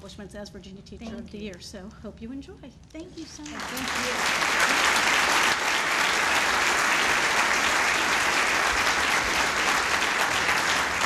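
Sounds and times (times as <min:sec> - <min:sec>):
audience applauding: 0:03.4 - 0:11.0.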